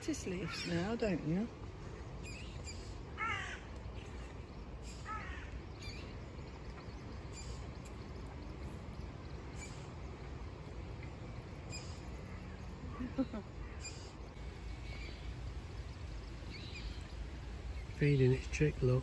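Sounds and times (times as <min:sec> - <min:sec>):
low outdoor background hum: 0:00.0 - 0:19.0
harsh crow-like bird call: 0:03.2 - 0:03.7, 0:04.9 - 0:05.5.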